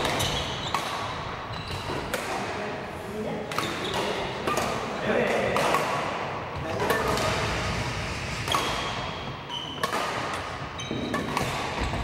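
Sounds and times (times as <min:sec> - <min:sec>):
shoes squeaking on wooden floor: 0:00.0 - 0:00.8, 0:01.5 - 0:02.0, 0:09.5 - 0:09.8
racket hitting shuttlecock: 0:00.0 - 0:02.5, 0:03.4 - 0:07.4, 0:08.4 - 0:12.0.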